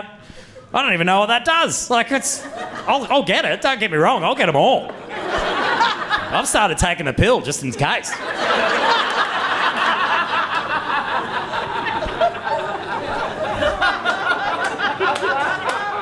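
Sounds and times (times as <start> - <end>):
audience laughing: 2.3 - 3.1, 4.9 - 6.8, 7.6 - 16.0.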